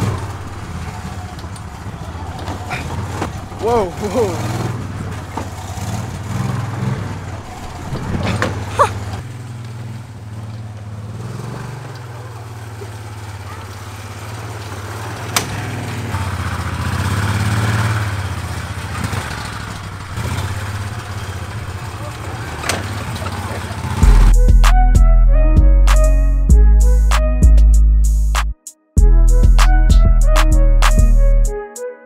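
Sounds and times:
golf cart humming: 0.0 - 24.9.

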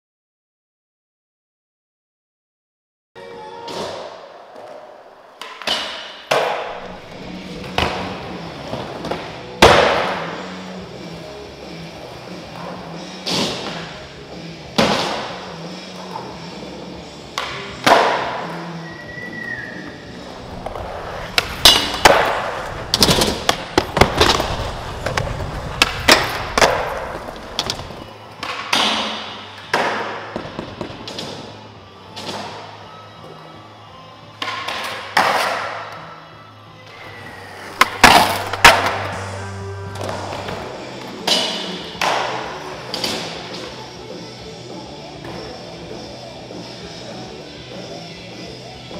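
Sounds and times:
skateboards rolling on concrete: 6.3 - 28.7, 36.8 - 48.9
skateboard landing slaps: 9.0 - 10.3, 20.6 - 31.4
skateboard rolling on wooden ramps: 20.2 - 28.1, 37.1 - 41.2
board sliding on a ledge: 20.3 - 28.1.

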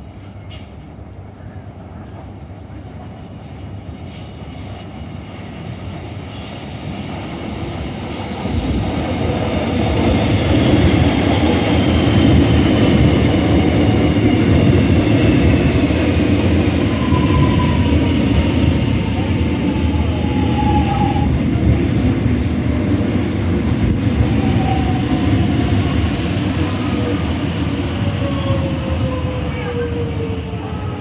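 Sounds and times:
electric train rumble: 0.0 - 31.0.

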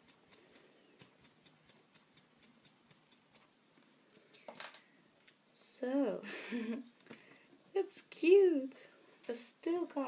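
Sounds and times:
faint regular ticking: 0.0 - 3.6.

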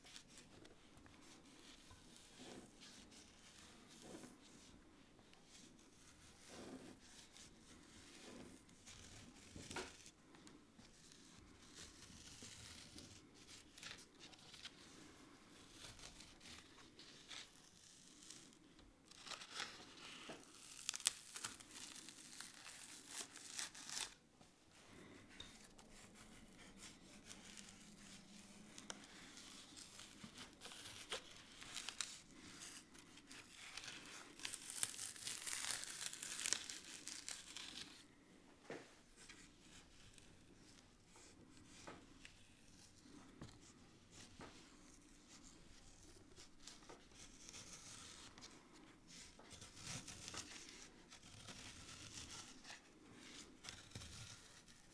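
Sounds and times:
metal spatula scraping paper: 0.0 - 4.8, 5.5 - 10.1, 10.9 - 24.2, 24.8 - 38.0, 39.2 - 54.9
paper tearing apart: 19.1 - 24.2, 29.1 - 38.0.

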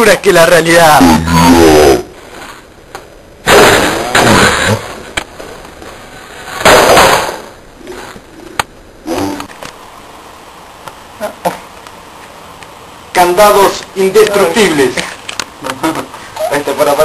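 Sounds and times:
loud crash: 3.4 - 5.1, 6.5 - 7.6.

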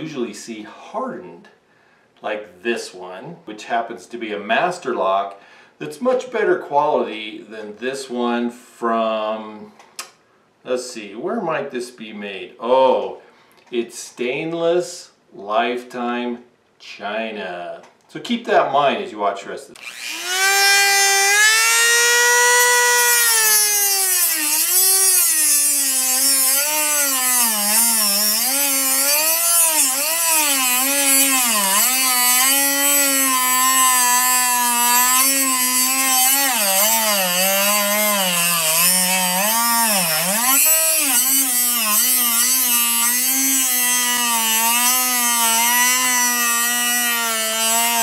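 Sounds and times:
rotary tool grinding metal: 19.8 - 48.0.

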